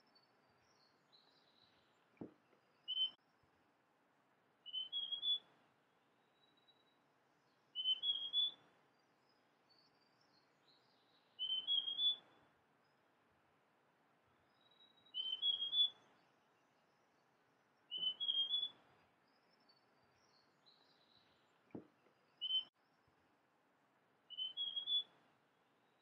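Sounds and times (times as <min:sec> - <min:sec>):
bird singing clear notes: 0:02.5 - 0:03.2, 0:04.6 - 0:05.5, 0:07.7 - 0:08.6, 0:09.7 - 0:12.3, 0:14.5 - 0:16.2, 0:17.9 - 0:22.8, 0:24.3 - 0:25.1.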